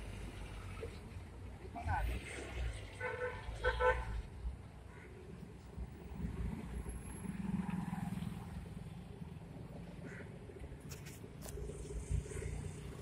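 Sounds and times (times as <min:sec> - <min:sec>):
traffic hum: 0:00.0 - 0:13.0.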